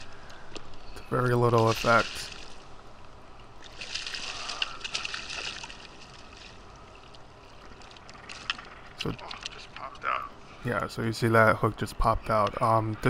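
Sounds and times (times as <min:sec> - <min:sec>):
gentle water sounds: 0:00.0 - 0:13.0
fish splashing and thrashing in water: 0:01.5 - 0:02.8, 0:03.5 - 0:09.8.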